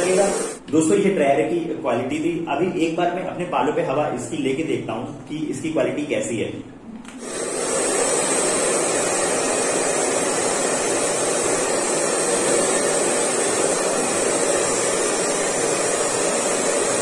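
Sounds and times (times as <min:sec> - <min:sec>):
hair dryer blowing: 0:00.0 - 0:00.7, 0:07.2 - 0:17.0.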